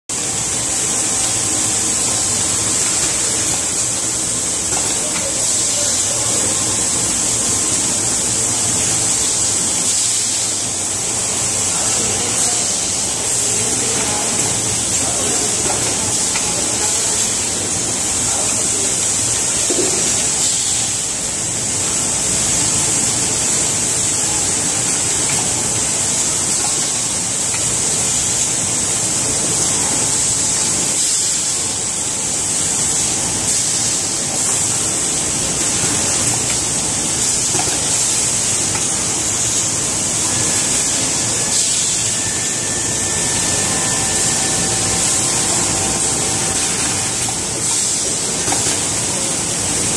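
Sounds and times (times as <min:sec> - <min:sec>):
loud steady hiss: 0:00.1 - 0:49.9
machine running: 0:31.7 - 0:49.9.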